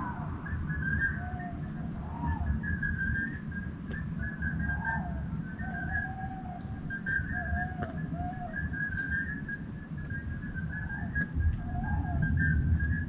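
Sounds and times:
lower arched animal calls: 0.0s - 3.3s, 4.2s - 8.7s
whistle-like animal calls: 0.0s - 13.0s.

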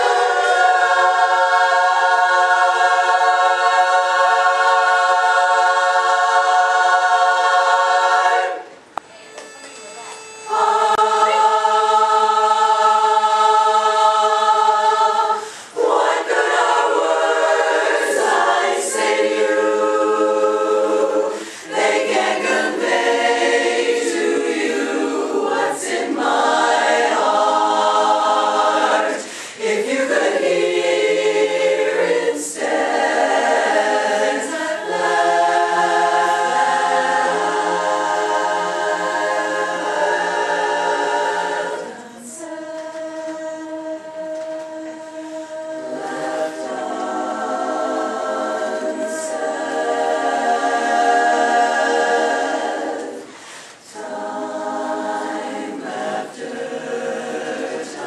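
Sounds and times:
women's chorus singing a cappella: 0.0s - 8.9s, 10.5s - 58.0s.

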